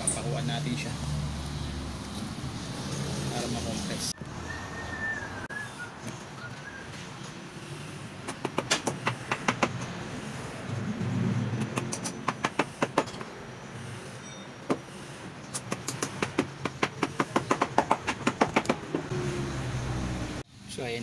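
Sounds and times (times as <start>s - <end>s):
hammer driving nails: 8.2s - 9.9s, 11.6s - 13.3s, 15.5s - 19.1s.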